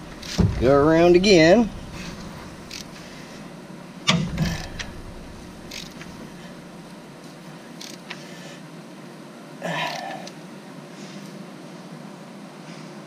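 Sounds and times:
sharp metallic clunk: 0.0 - 2.7, 4.0 - 6.2
steady background hum: 0.0 - 13.0.

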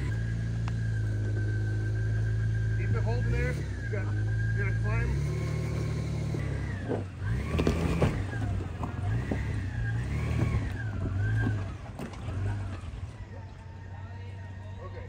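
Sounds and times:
whine: 0.0 - 7.3
engine revving: 0.0 - 15.0.

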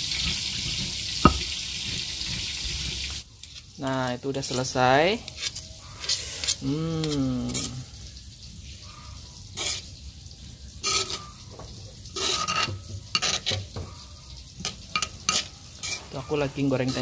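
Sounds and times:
metal spoon scraping stone mortar: 1.3 - 1.5, 15.3 - 16.1.

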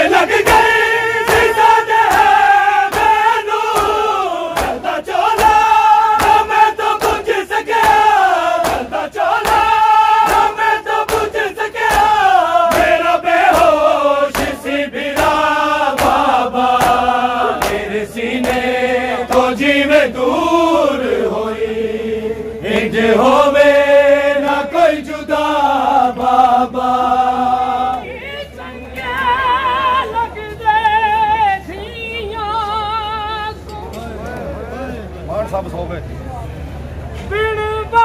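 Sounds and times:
crowd chanting a lament: 0.0 - 32.4
hands slapping on chests: 0.4 - 18.7, 19.3 - 19.6.

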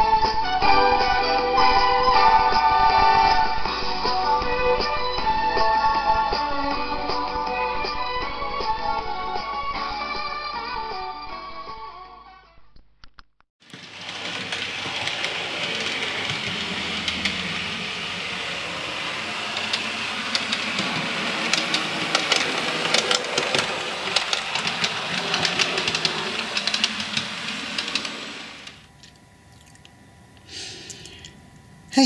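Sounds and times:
wheels clicking over rails: 13.6 - 29.1
train running past: 13.7 - 28.9.

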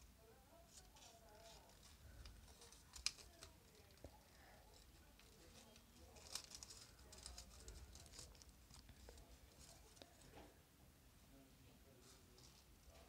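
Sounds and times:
sharp paper crackle: 0.7 - 10.3
paper rustling and crinkling: 0.7 - 10.4.

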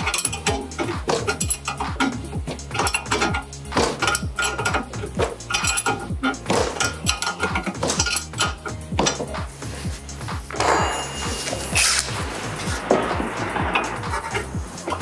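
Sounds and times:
metallic wrench clinks: 0.0 - 1.9, 2.6 - 6.1, 6.8 - 9.2
background music with beat: 0.0 - 15.0.

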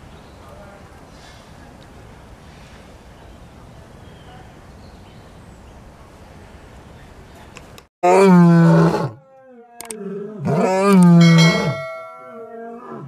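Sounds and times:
lion roaring: 8.0 - 11.8, 12.4 - 13.0.

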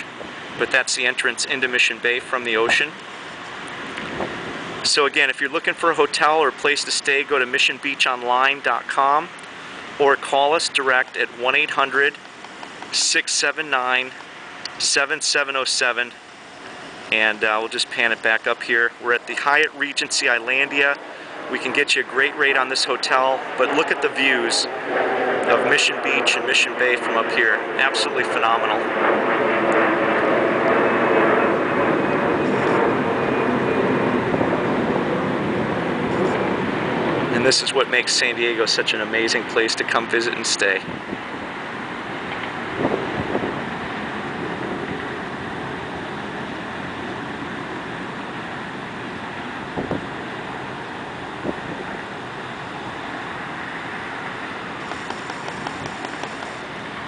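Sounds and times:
distant road traffic hum: 0.0 - 57.0
steady rushing noise: 0.0 - 57.0
wind on microphone: 3.8 - 4.9, 28.7 - 37.5, 40.8 - 53.9.

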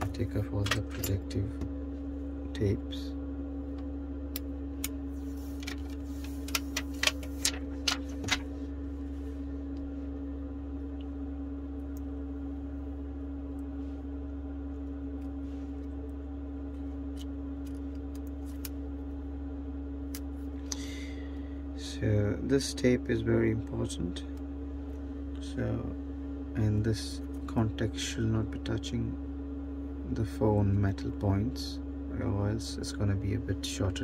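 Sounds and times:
low hum: 0.0 - 34.0
film tape peeling: 4.8 - 8.5, 15.9 - 19.0.

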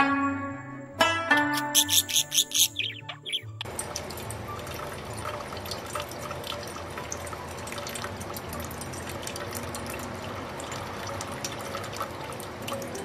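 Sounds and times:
plucked-string music: 0.0 - 3.8
budgerigar chirps: 1.5 - 3.6
tap water running into sink: 3.6 - 13.0.

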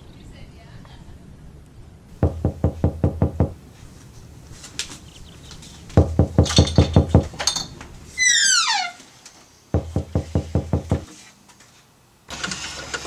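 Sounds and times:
knocking on a wooden door: 2.2 - 3.6, 6.0 - 7.4, 9.8 - 11.1.

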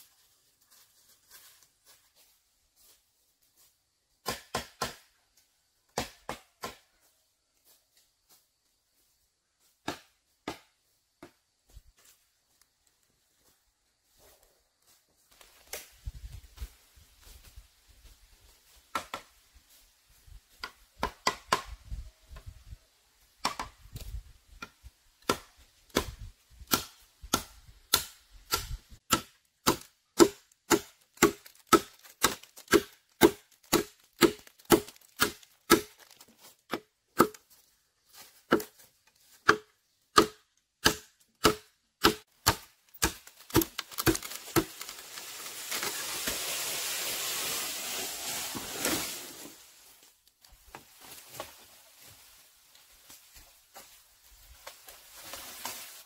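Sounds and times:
blade chopping bamboo: 4.2 - 5.1, 6.0 - 6.9, 25.2 - 37.5, 38.5 - 38.8, 39.4 - 46.3.

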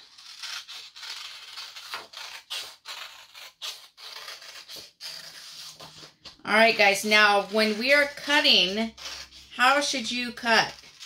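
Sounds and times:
scissors snipping paper: 0.0 - 6.0
paper scraping and rustling: 0.0 - 11.0.

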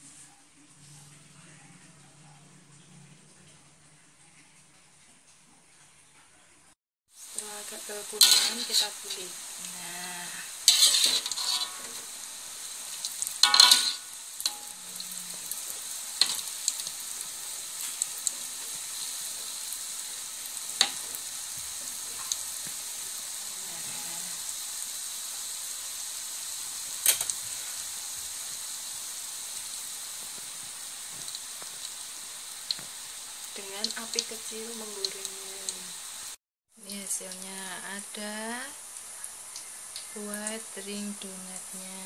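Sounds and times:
donuts sizzling in oil: 7.1 - 42.0
spatula clacking against wok: 13.4 - 14.8.

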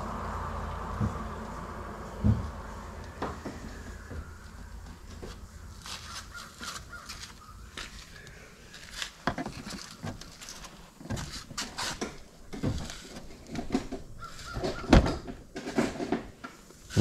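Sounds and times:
heavy thump: 1.0 - 1.3, 2.2 - 4.3.

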